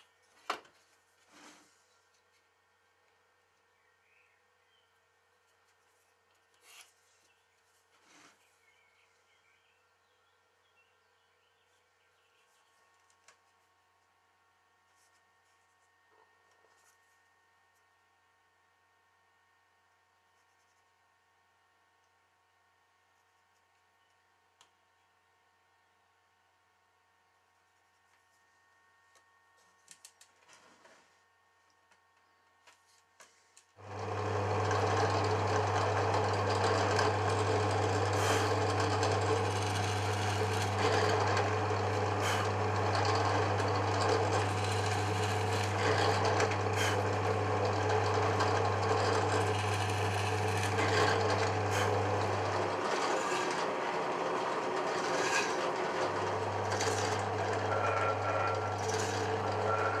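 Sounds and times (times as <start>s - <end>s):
drill press boring wood: 33.8s - 60.0s.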